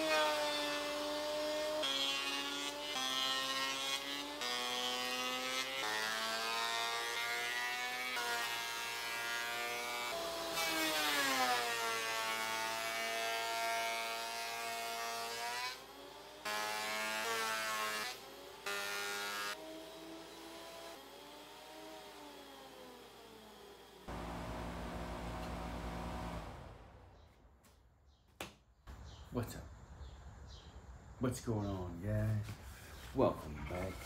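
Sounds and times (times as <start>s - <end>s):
thickness planer motor whine: 18.2s - 27.4s.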